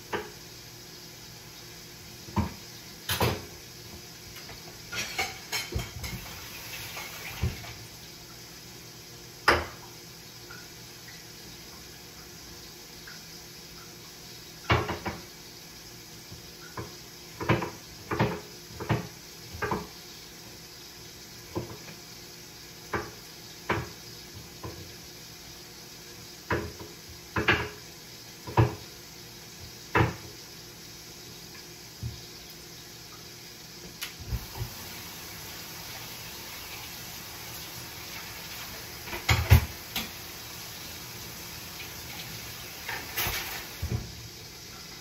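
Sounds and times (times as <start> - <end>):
pots and dishes clinking: 4.4 - 7.8, 14.7 - 15.2, 16.7 - 20.0, 39.0 - 40.2, 42.7 - 44.0.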